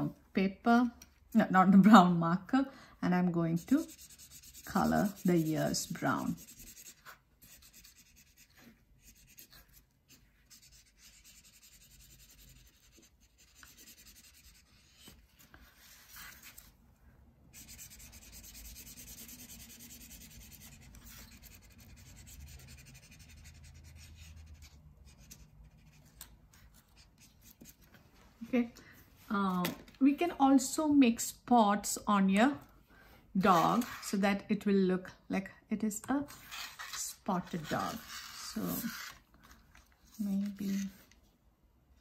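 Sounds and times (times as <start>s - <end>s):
marker scribbling on paper: 3.6s - 16.6s, 17.5s - 27.9s, 36.2s - 39.2s.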